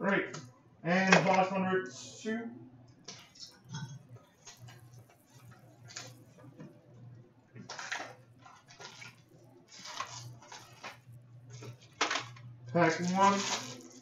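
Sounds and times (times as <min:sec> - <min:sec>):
faint low hum: 0:00.0 - 0:14.0
cardboard and plastic rustling: 0:07.6 - 0:14.0.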